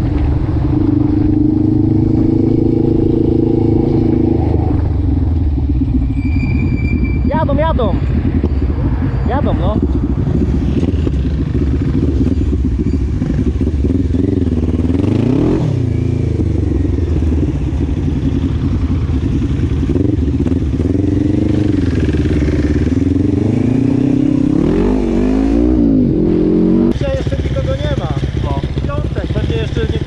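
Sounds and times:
quad engine revving: 13.2 - 16.6.

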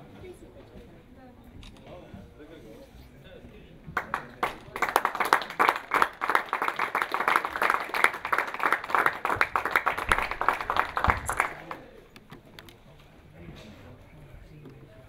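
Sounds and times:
audience applauding: 4.0 - 11.9.

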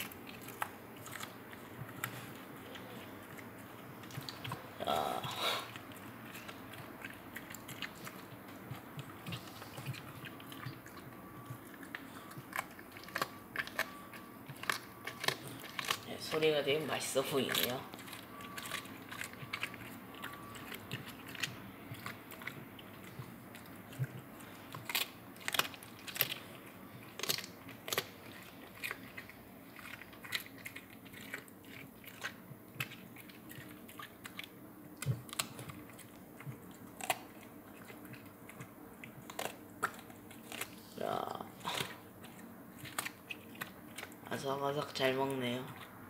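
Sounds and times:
dog crunching melon: 0.0 - 46.0.

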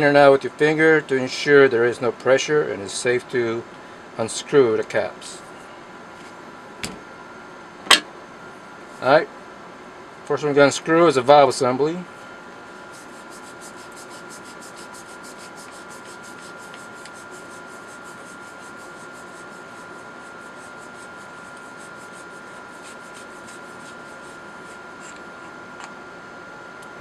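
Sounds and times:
steady high hum: 0.0 - 27.0
quick rubbing rasping: 12.9 - 25.6.

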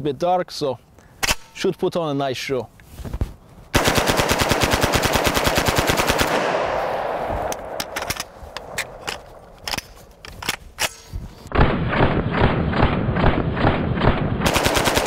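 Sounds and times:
submachine gun automatic burst: 3.8 - 6.6, 14.0 - 15.0
gunfire echo: 3.8 - 9.6, 11.5 - 15.0.

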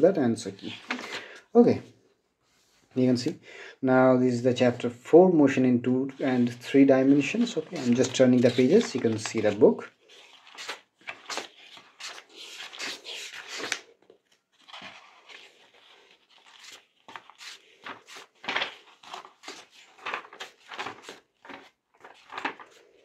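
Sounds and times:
book pages turning: 0.6 - 1.4, 6.2 - 23.0.

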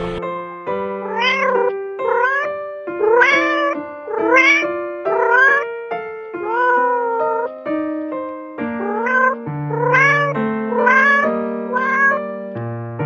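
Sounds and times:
background music: 0.0 - 1.5
cat meowing: 1.0 - 5.7, 6.4 - 7.5, 8.8 - 12.3.

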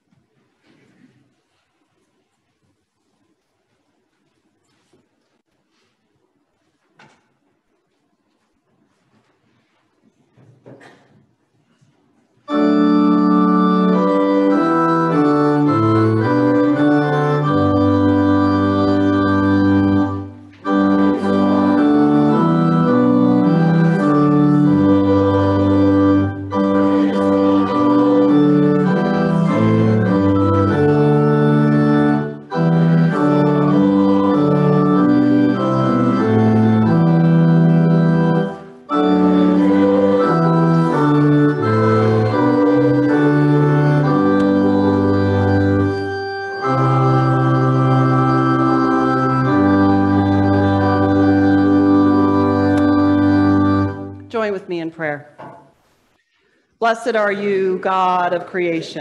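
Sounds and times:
organ playing slow chords: 12.4 - 54.3.

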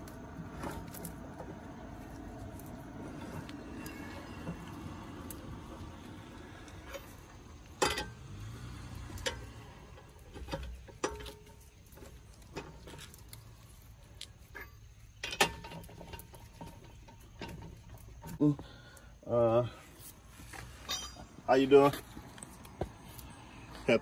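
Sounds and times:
lug wrench clinking on lug nuts: 6.7 - 13.1, 14.5 - 18.2, 20.7 - 22.4.

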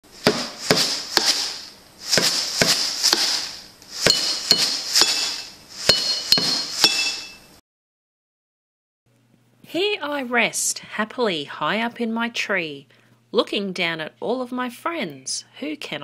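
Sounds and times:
sharp knocking strikes: 0.2 - 1.5, 4.0 - 7.3
high ringing clink: 4.1 - 7.5.

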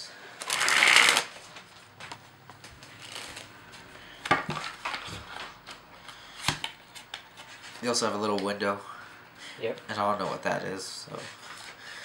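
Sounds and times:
playing cards rustling: 0.4 - 3.5.

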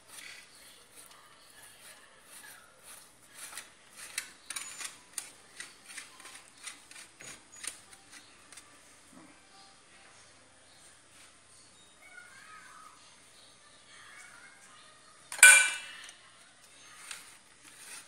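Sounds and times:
cheese grating on metal grater: 0.0 - 8.7, 16.8 - 18.0.

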